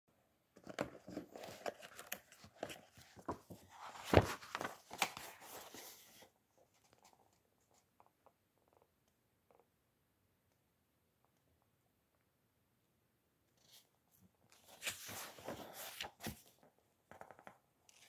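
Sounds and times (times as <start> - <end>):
paper rustling and crinkling: 0.6 - 7.2, 14.6 - 16.7.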